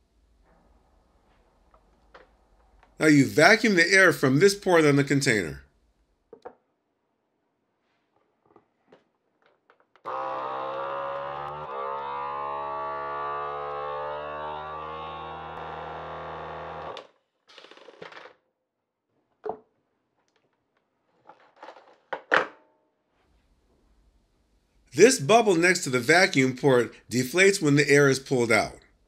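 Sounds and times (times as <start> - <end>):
vacuum pump humming: 10.1 - 17.0.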